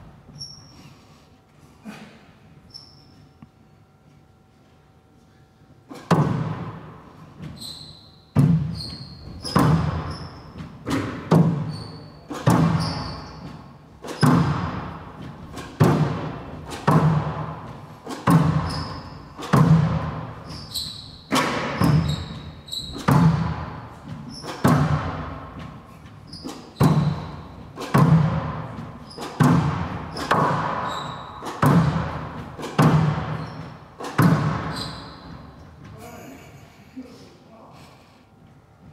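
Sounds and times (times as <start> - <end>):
short high squeaks: 0.3 - 1.0, 2.7 - 3.4, 7.5 - 10.6, 11.6 - 14.4, 18.4 - 19.5, 20.4 - 23.1, 30.1 - 31.6, 33.3 - 33.9, 34.6 - 35.6
squash ball hits echoing: 5.9 - 7.6, 8.3 - 35.6.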